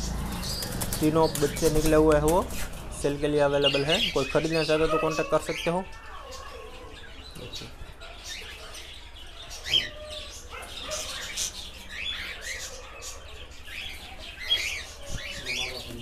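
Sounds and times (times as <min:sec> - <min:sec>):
wings flapping: 0:00.0 - 0:03.0
cockatiels chirping: 0:03.6 - 0:16.0.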